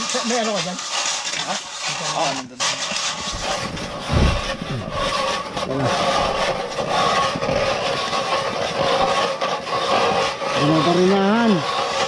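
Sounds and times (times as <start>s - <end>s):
ice auger grinding into ice: 0.0s - 12.0s
dull thump: 3.3s - 6.8s.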